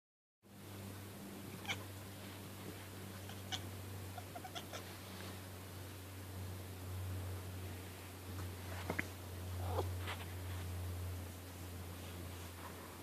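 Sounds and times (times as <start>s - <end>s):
cat chattering chirps: 1.6s - 1.8s, 3.2s - 4.8s.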